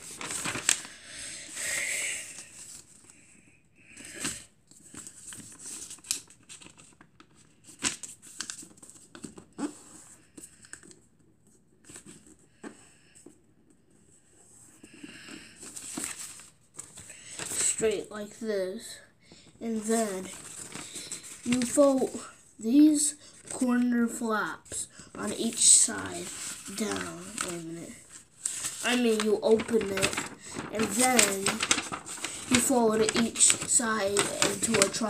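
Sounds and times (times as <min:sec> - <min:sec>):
paper being folded: 0:00.0 - 0:03.2, 0:04.0 - 0:12.4, 0:14.6 - 0:35.0.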